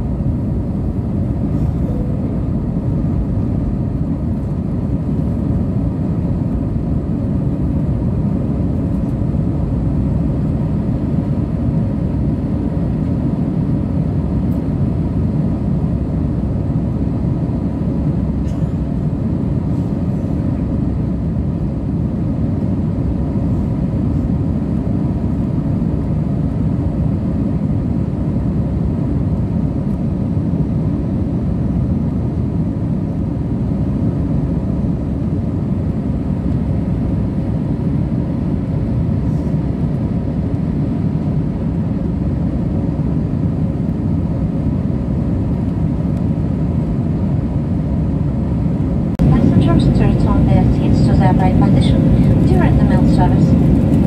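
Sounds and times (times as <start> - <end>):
faint steady hums: 0.0 - 54.0
airliner cabin rush: 49.2 - 54.0.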